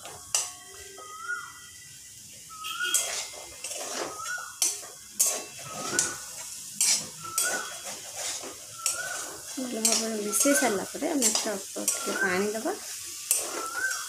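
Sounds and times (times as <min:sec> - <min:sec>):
low sizzle: 0:00.0 - 0:14.0
metal spatula scraping pan: 0:02.6 - 0:14.0
short rising squeak: 0:05.4 - 0:06.3, 0:06.9 - 0:09.4.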